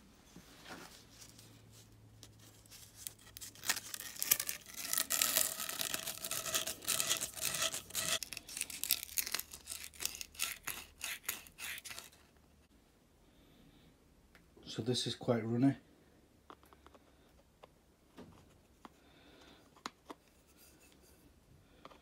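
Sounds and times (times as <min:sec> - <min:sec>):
abrasive cloth rasping on pipe: 0:04.1 - 0:08.2.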